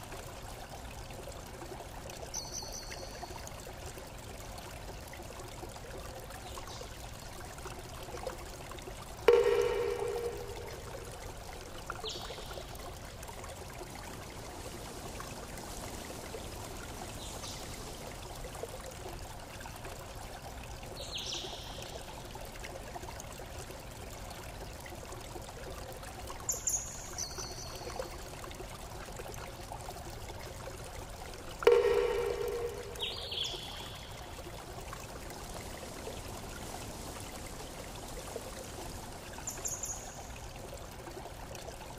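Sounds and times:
running water: 0:00.0 - 0:41.9
high chirps: 0:09.3 - 0:11.0, 0:31.7 - 0:34.2.

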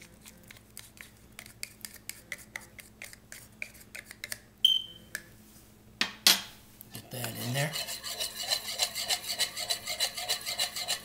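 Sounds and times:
spoon scraping ceramic dish: 0:07.0 - 0:11.0.

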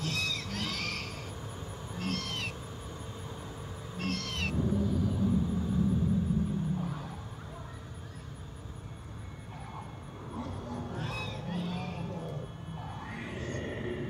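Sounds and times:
low dinosaur growl: 0:04.5 - 0:07.3, 0:09.6 - 0:14.0.

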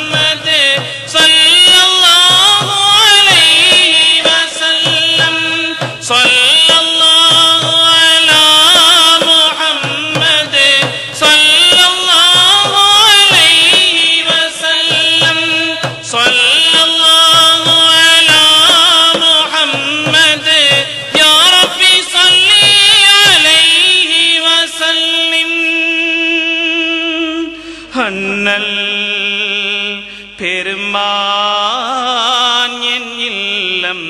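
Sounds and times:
regular drum beat: 0:00.0 - 0:24.3
devotional song singing: 0:00.0 - 0:34.0.

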